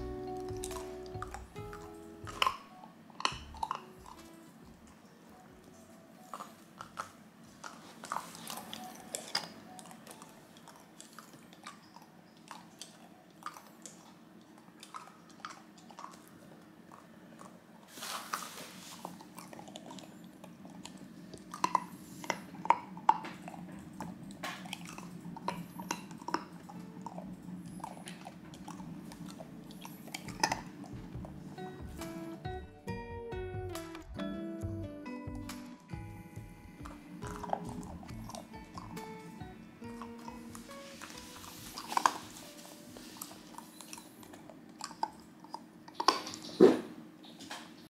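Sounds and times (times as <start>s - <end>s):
puppy crunching ice cubes: 37.0s - 42.5s.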